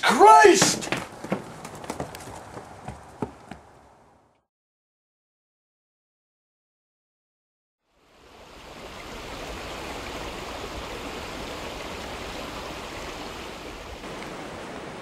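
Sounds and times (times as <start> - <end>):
flowing stream: 7.9 - 15.0.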